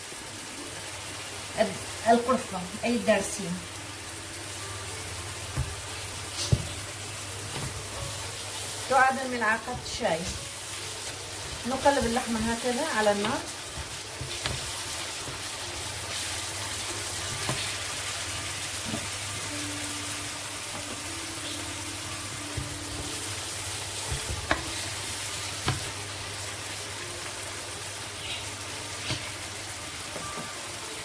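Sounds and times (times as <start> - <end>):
meat sizzling in a frying pan: 0.0 - 31.0.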